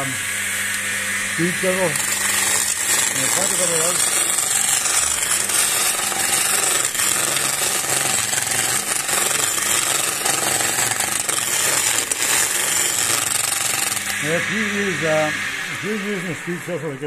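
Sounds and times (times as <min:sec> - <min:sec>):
wood lathe running: 0:00.0 - 0:17.0
chisel shaving wood: 0:01.1 - 0:17.0.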